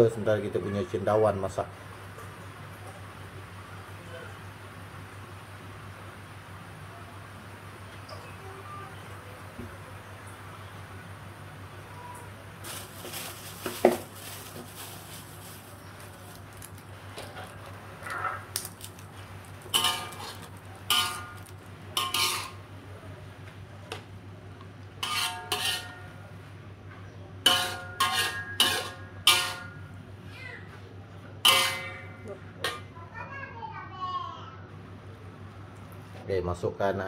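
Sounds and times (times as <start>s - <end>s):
metal spatula clanking on wok: 19.7s - 22.6s, 25.0s - 26.2s, 27.4s - 29.9s, 31.4s - 32.9s.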